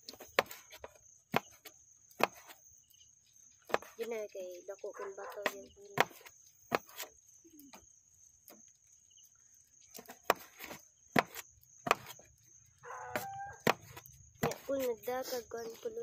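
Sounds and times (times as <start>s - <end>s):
high insect trill: 0.0s - 16.0s
knife chopping on wooden board: 0.1s - 2.6s, 3.6s - 4.0s, 5.3s - 7.1s, 9.9s - 12.2s, 13.0s - 14.9s.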